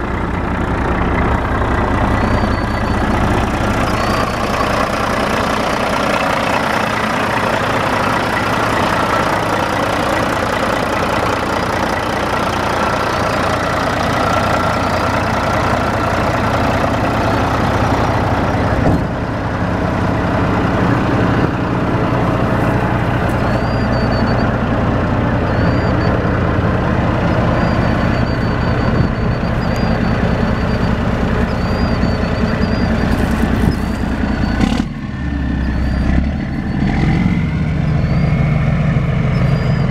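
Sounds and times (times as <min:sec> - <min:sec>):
diesel truck engine idling: 0:00.0 - 0:39.9.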